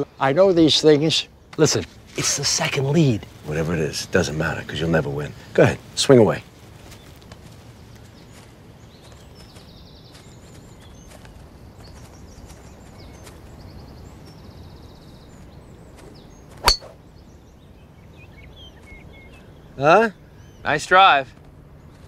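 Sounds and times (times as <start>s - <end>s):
faint bird chirps and trills: 0.0s - 22.0s
golf club striking ball: 16.6s - 17.0s.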